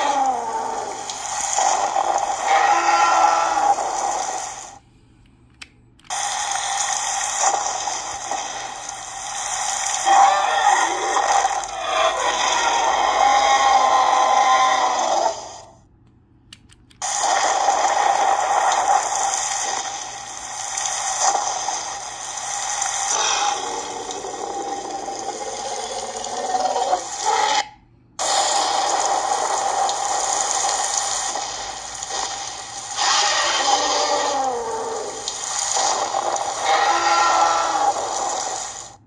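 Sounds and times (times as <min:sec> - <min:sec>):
toy toilet flush sound effect: 0:22.6 - 0:39.0.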